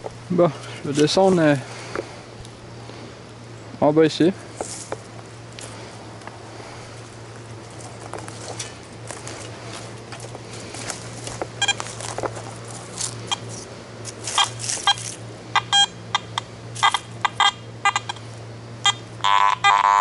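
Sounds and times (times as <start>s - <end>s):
footsteps in dry leaf litter: 0.5s - 2.1s, 4.4s - 15.3s
metal detector beeps: 11.6s - 11.8s, 13.3s - 13.5s, 14.3s - 18.2s, 18.8s - 20.0s.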